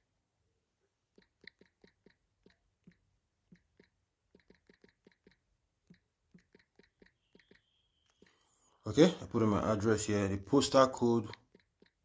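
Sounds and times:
typing on phone touchscreen: 1.1 - 8.5, 11.2 - 12.0.

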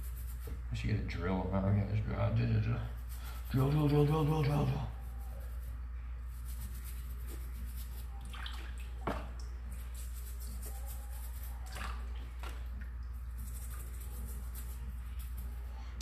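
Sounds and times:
steady low hum: 0.0 - 16.0
water splashing and dripping: 8.2 - 9.6, 11.6 - 13.2.

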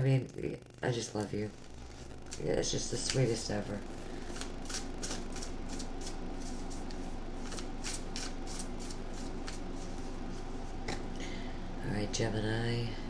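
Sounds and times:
cards shuffling and riffling: 4.2 - 10.0.

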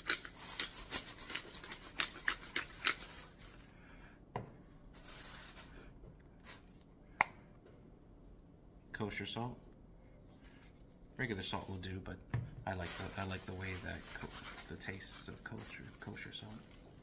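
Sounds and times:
pepper grinder rasping: 0.0 - 3.7
soft rustle: 4.9 - 5.8.

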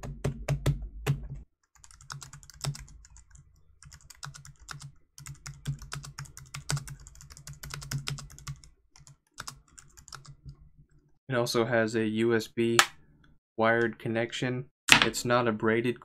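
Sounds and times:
thuddy keyboard typing: 0.0 - 3.2, 3.8 - 10.5.

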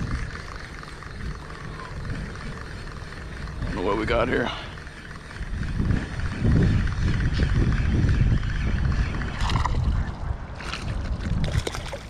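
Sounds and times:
wind buffeting microphone: 0.0 - 12.0
water splashes: 10.6 - 12.0.

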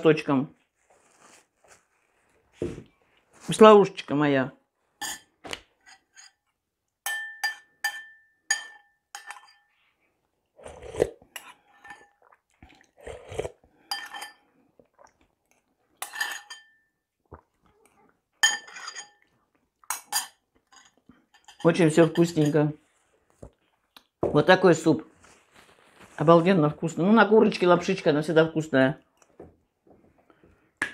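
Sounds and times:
metal spoon clinking porcelain bowl: 7.0 - 9.7, 13.9 - 14.4, 16.0 - 16.9, 18.4 - 19.2, 19.9 - 22.6.

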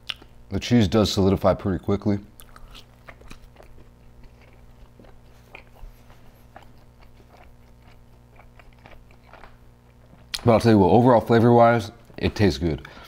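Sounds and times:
close chewing mouth sounds: 0.0 - 0.4, 2.3 - 10.4.

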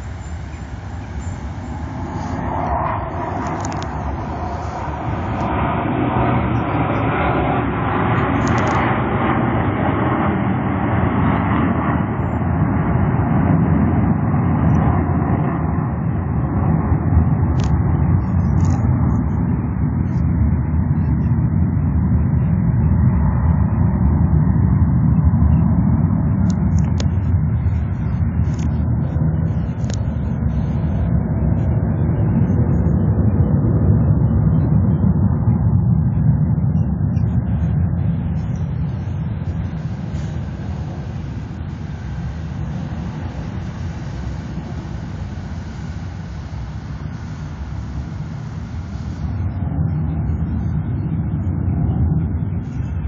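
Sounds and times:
jets roaring overhead: 0.0 - 53.0.

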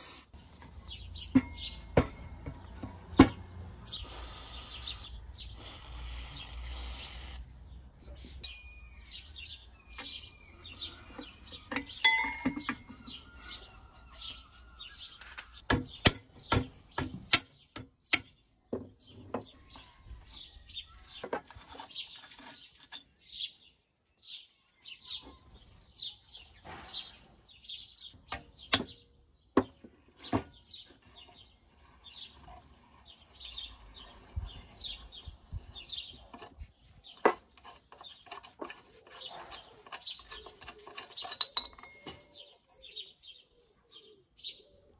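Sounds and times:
birds chirping: 0.3 - 44.9.

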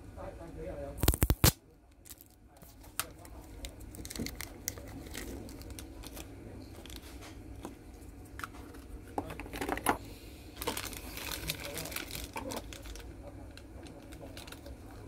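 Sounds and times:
plastic bags crinkling: 1.0 - 6.2, 6.8 - 7.2, 10.6 - 15.0.

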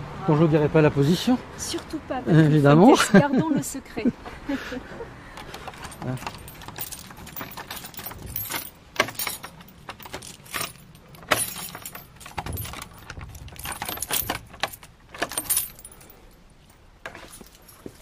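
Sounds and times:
lock clicking: 5.4 - 15.9
keys jangling and clinking: 5.4 - 18.0.

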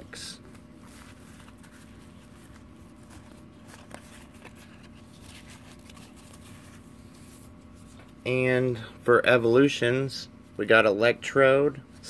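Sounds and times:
trading cards rustling: 0.1 - 8.2.

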